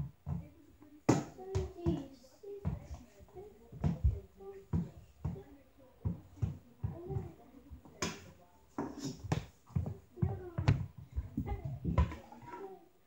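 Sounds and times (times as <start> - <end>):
hockey ball tapping on wooden floor: 3.8 - 10.9.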